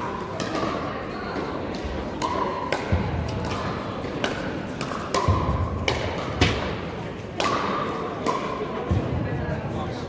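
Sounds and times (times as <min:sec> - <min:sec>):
paddles hitting plastic ball: 0:01.8 - 0:09.0.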